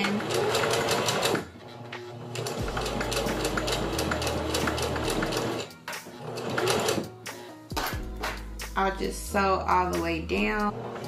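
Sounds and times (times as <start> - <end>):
sewing machine stitching: 0.0 - 7.1.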